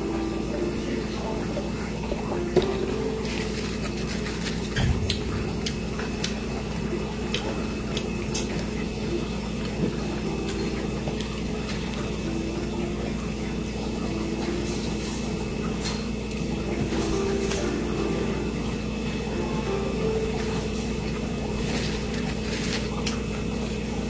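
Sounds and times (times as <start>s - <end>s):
steady low hum: 0.0s - 24.0s
chewing crunchy toast: 2.0s - 15.2s, 20.6s - 24.0s
low thump: 4.8s - 6.0s.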